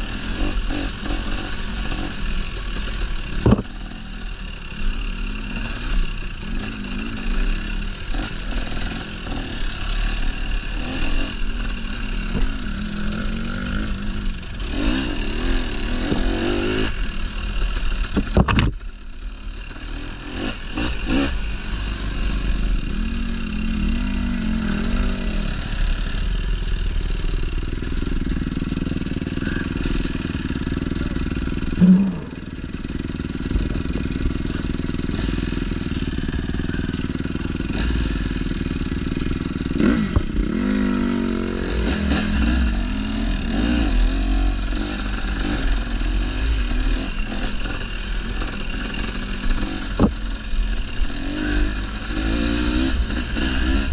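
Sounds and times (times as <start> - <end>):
dirt bike engine revving: 0.0 - 53.9
loud thump: 3.4 - 3.7.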